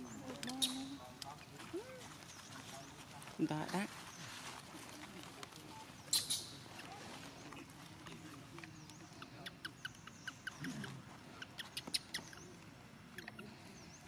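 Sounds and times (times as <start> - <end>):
animal squeaks and chirps: 0.4 - 1.0, 6.1 - 6.9, 9.2 - 12.5, 13.1 - 13.6.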